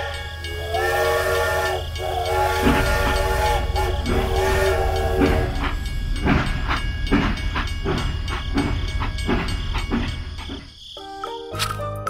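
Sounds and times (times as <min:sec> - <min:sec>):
toy train electronic whistle: 0:00.0 - 0:06.0
rhythmic toy train chugging beats: 0:00.0 - 0:11.0.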